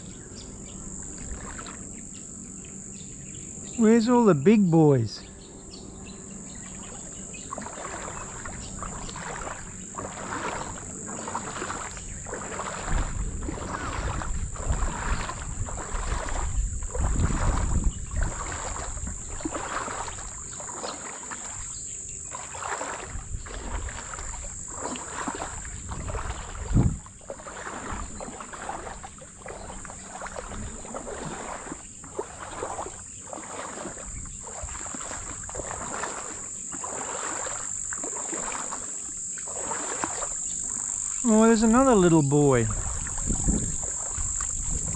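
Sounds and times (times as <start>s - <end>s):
high insect drone: 0.0s - 44.9s
legs wading through shallow water: 0.0s - 44.9s
wind rumble on microphone: 6.6s - 20.6s, 21.4s - 33.0s, 33.6s - 36.3s, 41.2s - 44.9s.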